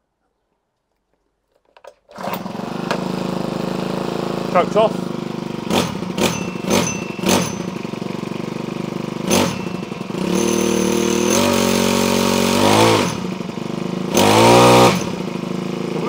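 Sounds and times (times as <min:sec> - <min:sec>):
hedge trimmer engine revving: 0:02.1 - 0:16.0.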